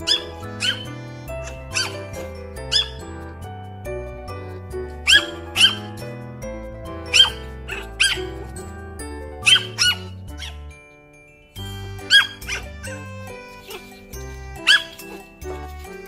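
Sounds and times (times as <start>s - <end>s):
puppy yipping: 0.0s - 3.5s, 4.1s - 6.2s, 7.0s - 8.7s, 9.3s - 10.8s, 11.9s - 16.0s
background music: 0.0s - 16.0s.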